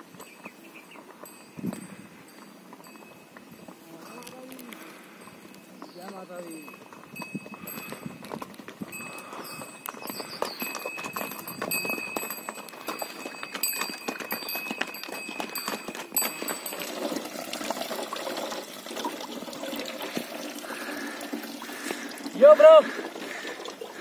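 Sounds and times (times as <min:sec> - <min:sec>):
mule bells ringing: 0:00.0 - 0:23.7
hooves clopping over rock: 0:00.0 - 0:24.0
trickling water hiss: 0:16.6 - 0:24.0.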